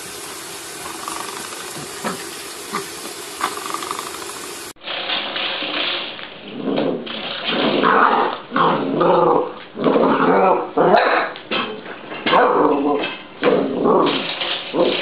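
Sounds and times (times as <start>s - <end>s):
puppy growling and yapping: 6.4s - 11.4s, 12.3s - 15.0s.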